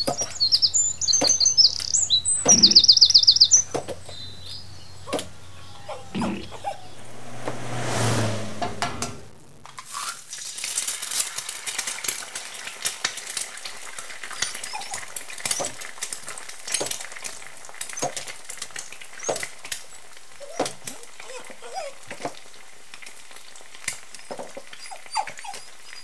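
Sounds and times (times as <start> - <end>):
low humming rush: 4.8 - 9.6
food sizzling and popping: 9.3 - 26.0.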